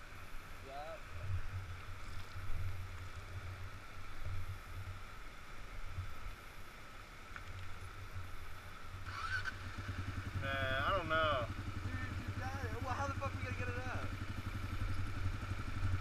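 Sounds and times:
creek water rushing: 0:00.0 - 0:16.0
motorcycle engine idling: 0:08.0 - 0:16.0.

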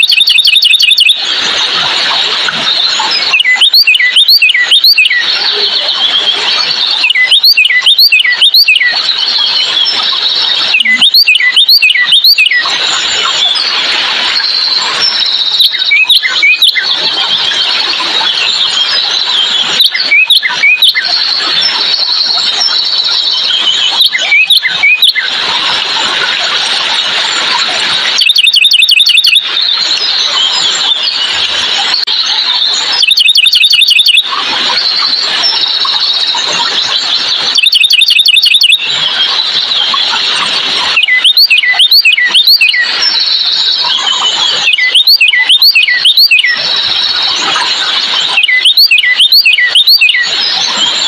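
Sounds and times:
songbirds singing: 0:00.0 - 0:01.2, 0:02.8 - 0:12.7, 0:28.2 - 0:31.3, 0:32.0 - 0:39.9, 0:41.0 - 0:51.0
rapid sharp repeated bird notes: 0:00.0 - 0:25.5, 0:26.3 - 0:51.0.

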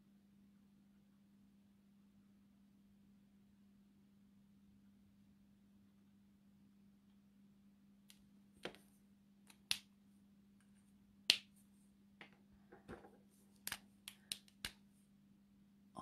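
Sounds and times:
plastic markers clicking: 0:13.6 - 0:14.8.

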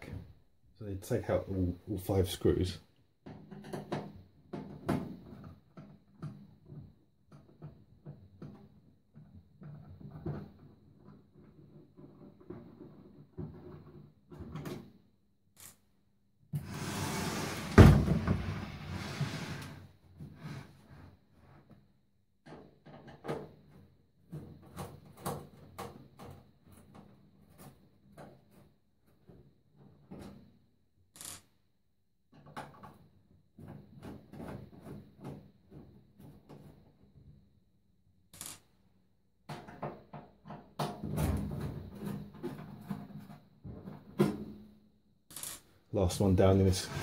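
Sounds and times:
microwave scraping on worktop: 0:16.6 - 0:19.8, 0:46.8 - 0:47.0
short hissing scrape: 0:16.7 - 0:17.8.

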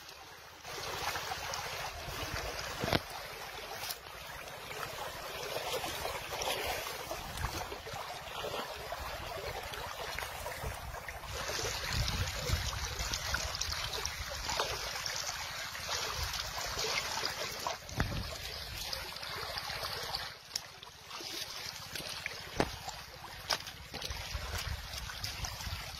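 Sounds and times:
fast-flowing river rushing: 0:00.3 - 0:25.9
wind rumbling on microphone: 0:08.9 - 0:14.6, 0:17.8 - 0:18.8, 0:24.1 - 0:25.9.

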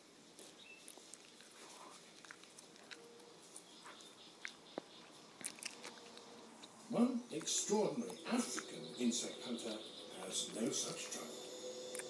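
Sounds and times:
faint clicks and rustles: 0:00.3 - 0:08.7.

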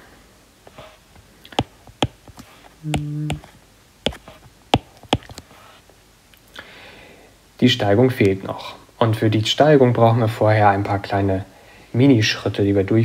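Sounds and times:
stylus tapping on touchscreen: 0:01.5 - 0:03.4, 0:04.1 - 0:05.4.

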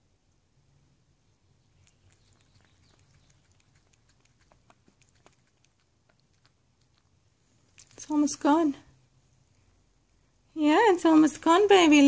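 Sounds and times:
cat lapping water: 0:01.6 - 0:08.0.

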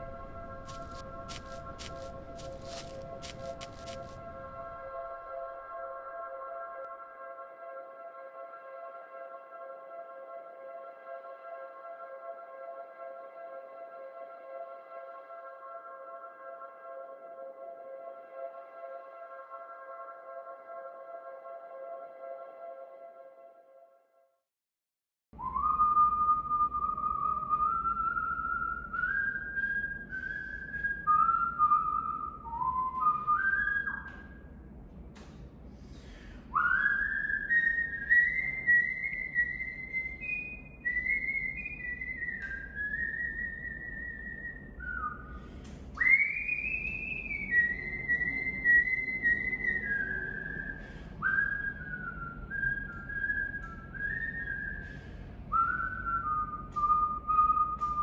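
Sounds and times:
person whistling a slow tune: 0:25.4 - 0:34.5, 0:36.5 - 0:58.0.

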